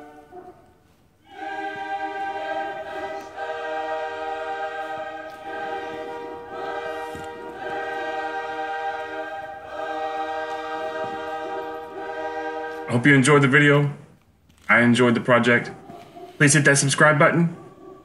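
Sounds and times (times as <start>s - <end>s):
choir-like music chords: 0.0s - 13.8s.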